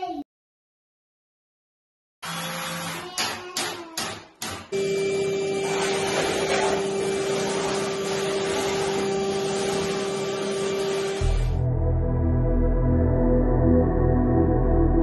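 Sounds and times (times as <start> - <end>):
drill driving screws: 2.2 - 3.6
vacuum cleaner running: 4.8 - 11.6.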